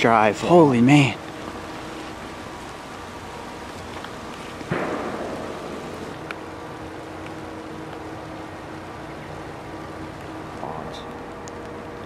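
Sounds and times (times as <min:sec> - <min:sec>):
steady background hiss: 0:00.0 - 0:12.0
distant rifle shot: 0:04.6 - 0:06.4.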